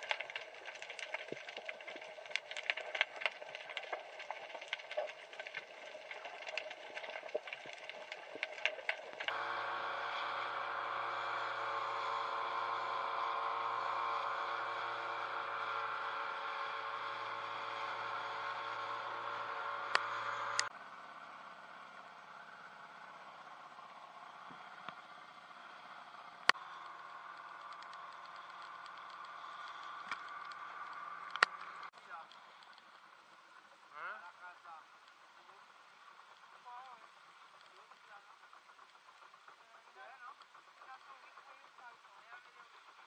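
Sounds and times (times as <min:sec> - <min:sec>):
underwater crackle of clicks: 0:00.0 - 0:09.4, 0:19.8 - 0:20.7, 0:26.4 - 0:34.0, 0:34.6 - 0:43.0
outboard motor running: 0:00.0 - 0:43.0
sharp clicks: 0:26.4 - 0:33.1.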